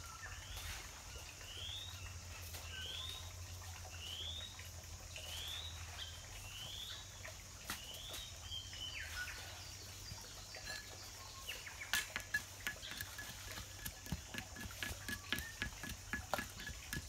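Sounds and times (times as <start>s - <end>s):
small birds chirping: 0.0s - 17.0s
tools striking stone: 11.7s - 17.0s.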